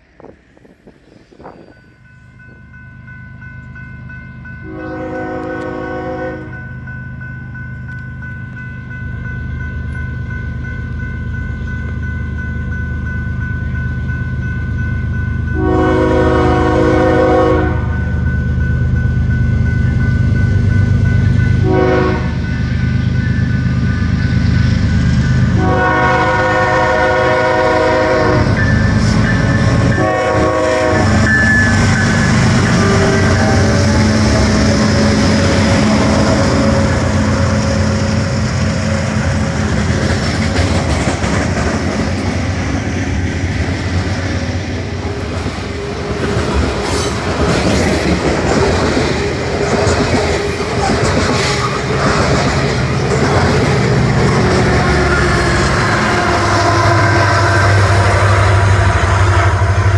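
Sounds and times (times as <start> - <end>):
crossing signal bell ringing: 0.6 - 39.7, 52.8 - 58.8
diesel locomotive air horn: 4.6 - 6.6, 15.6 - 18.1, 21.6 - 22.5, 25.5 - 39.5, 54.4 - 59.9
locomotive engine rumble: 15.7 - 59.9.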